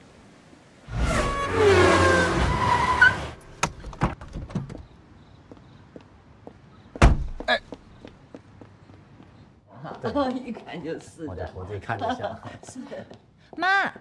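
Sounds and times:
tire squeal: 0.9s - 3.4s
car door thump: 7.0s - 7.4s.

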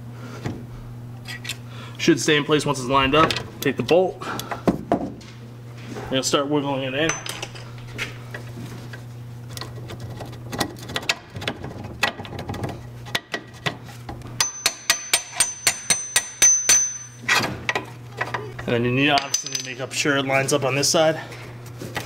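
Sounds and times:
hammer tapping metal: 14.4s - 17.2s.

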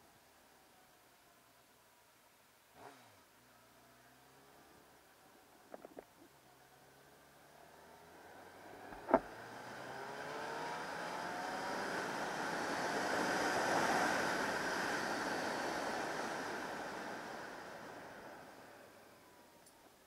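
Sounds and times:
wind and road noise: 3.8s - 20.0s
motorcycle engine accelerating: 8.2s - 18.7s.

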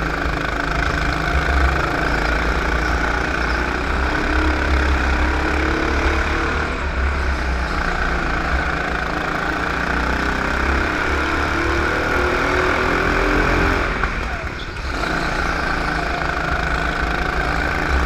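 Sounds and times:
kart engine running hard: 0.0s - 18.0s.

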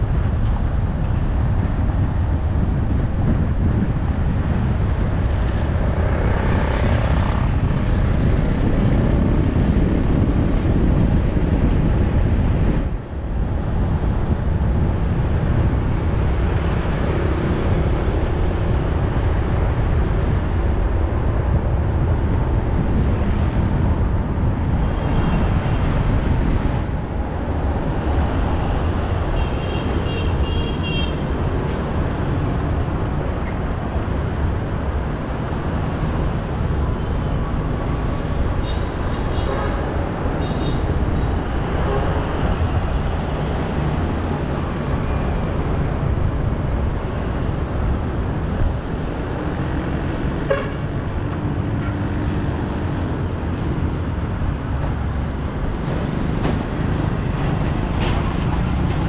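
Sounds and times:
engine and tyre rumble: 0.0s - 59.0s
traffic noise: 0.0s - 59.0s.

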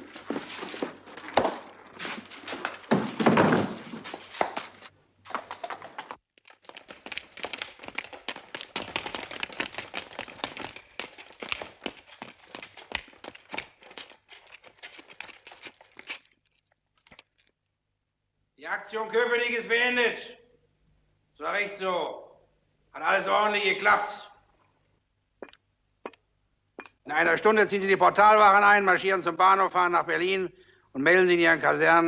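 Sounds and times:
boots tramping on stone floor: 0.0s - 16.3s.

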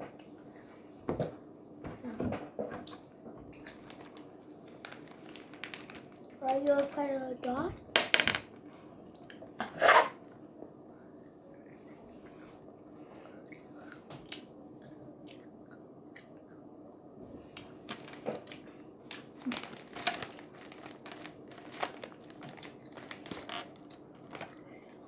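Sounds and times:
wrapper crinkling: 3.7s - 6.9s, 19.1s - 24.6s
child chewing crunchy candy: 17.4s - 25.0s.

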